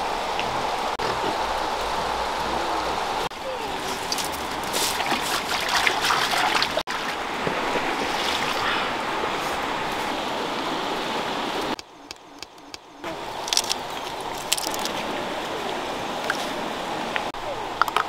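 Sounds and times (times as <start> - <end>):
running water: 0.0 - 11.8.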